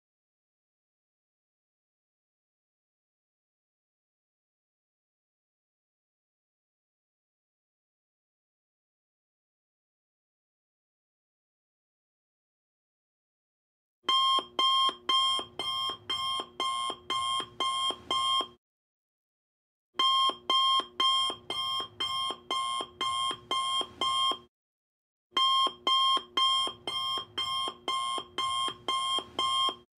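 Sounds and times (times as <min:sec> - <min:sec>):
electronic alarm beeping: 0:14.1 - 0:18.6, 0:20.0 - 0:24.5, 0:25.4 - 0:29.9.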